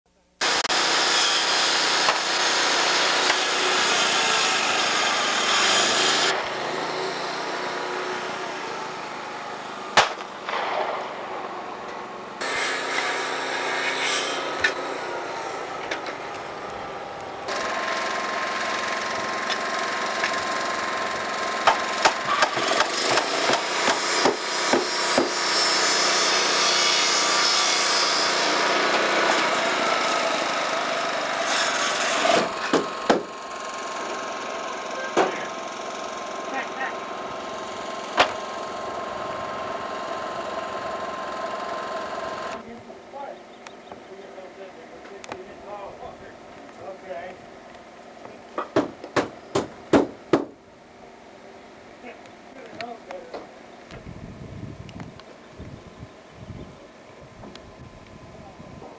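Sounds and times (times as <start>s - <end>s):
sawing wood: 0.4s - 10.0s, 12.4s - 42.6s, 48.6s - 50.6s
hammer driving nails: 21.6s - 25.6s, 31.6s - 33.3s, 48.6s - 50.6s.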